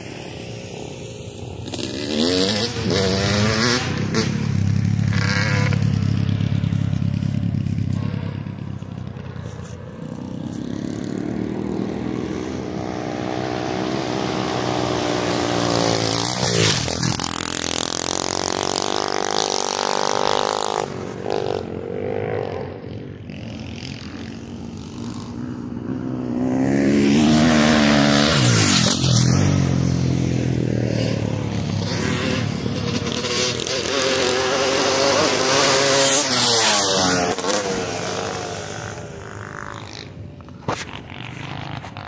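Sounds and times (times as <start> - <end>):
dirt bike engines revving: 0.0 - 42.0.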